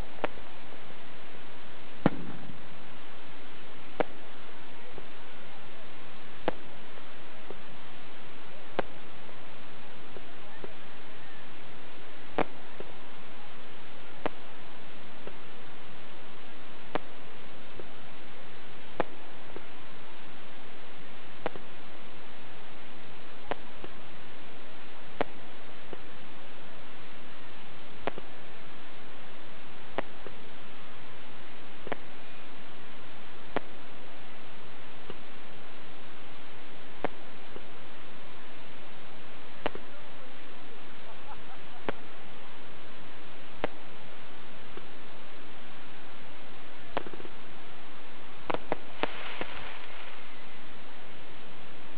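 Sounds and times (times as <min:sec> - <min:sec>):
steady hiss: 0:00.0 - 0:51.9
firework cracks: 0:01.4 - 0:05.2, 0:06.1 - 0:09.2, 0:09.8 - 0:40.8, 0:46.9 - 0:47.6, 0:48.3 - 0:51.7
faint firework pops: 0:02.0 - 0:02.6, 0:03.9 - 0:04.2, 0:06.4 - 0:06.7, 0:08.7 - 0:09.0, 0:12.3 - 0:12.9, 0:16.9 - 0:17.2, 0:18.9 - 0:19.7, 0:21.4 - 0:21.7, 0:23.5 - 0:24.0, 0:25.2 - 0:26.1, 0:28.0 - 0:28.3, 0:31.8 - 0:32.1, 0:33.5 - 0:33.8, 0:39.6 - 0:39.9, 0:43.6 - 0:43.8, 0:46.9 - 0:47.4, 0:48.4 - 0:50.2.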